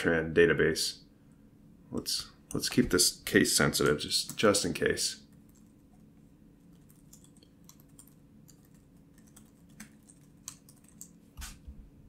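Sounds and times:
low steady hum: 0:00.0 - 0:12.0
typing on a keyboard: 0:06.7 - 0:11.2.

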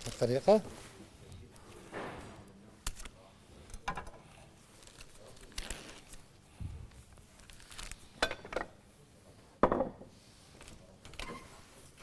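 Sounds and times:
dishes clinking: 0:08.2 - 0:08.8.

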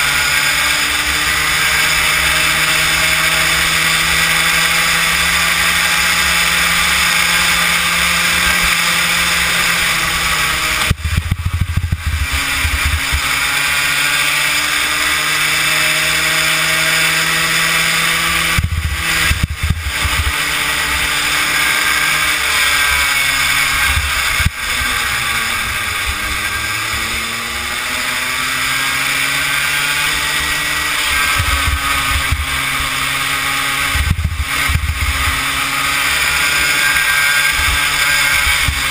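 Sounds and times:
kart engine running hard: 0:00.0 - 0:38.9
low buffeting rumble: 0:10.9 - 0:13.2.

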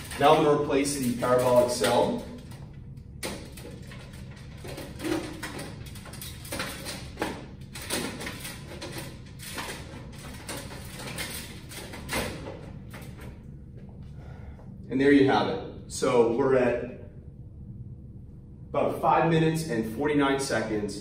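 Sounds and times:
sheet metal clicks and rattles: 0:00.0 - 0:13.4.

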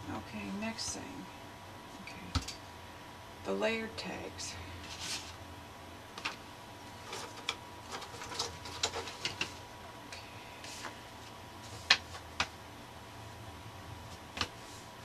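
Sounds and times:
paper rustling and tapping: 0:07.0 - 0:09.6, 0:11.7 - 0:12.6, 0:14.1 - 0:14.6.

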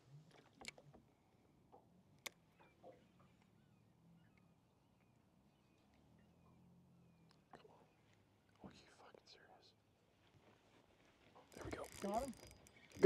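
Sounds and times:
distant bird chirps: 0:02.3 - 0:08.6
faint clicks: 0:11.4 - 0:13.0.

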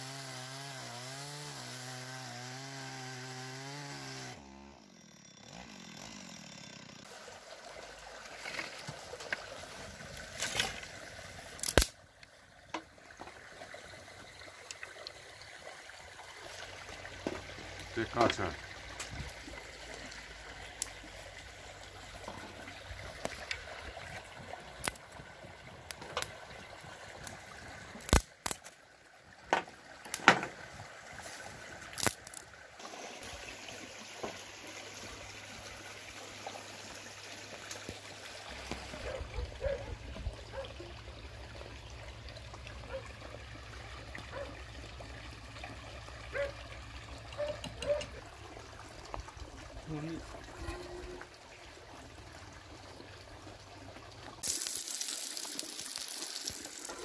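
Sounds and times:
wood fire crackling: 0:11.6 - 0:11.9, 0:54.4 - 0:57.0.

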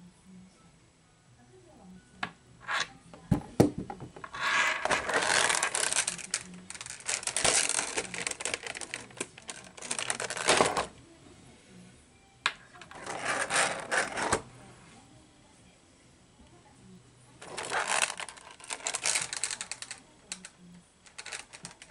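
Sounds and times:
rustling against plastic trays: 0:04.0 - 0:11.0, 0:12.8 - 0:14.5, 0:17.4 - 0:21.9.

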